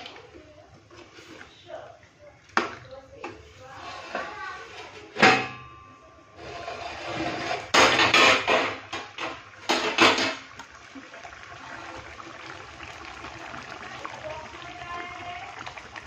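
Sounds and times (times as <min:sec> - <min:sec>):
curry bubbling in pot: 0:06.6 - 0:16.0
metal lid clattering on pot: 0:07.4 - 0:10.5.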